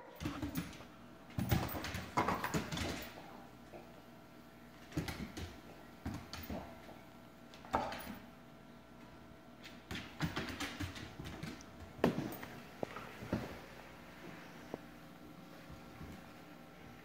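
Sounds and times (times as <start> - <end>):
dog paws thumping on wooden floor: 9.8 - 13.6.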